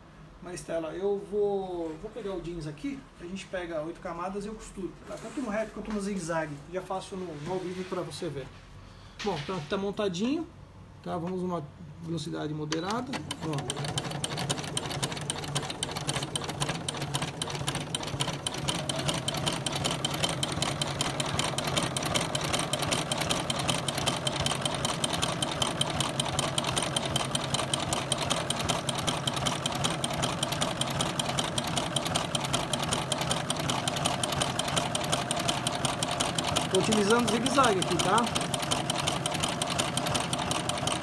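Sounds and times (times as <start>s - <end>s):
sewing machine running: 12.9s - 41.0s.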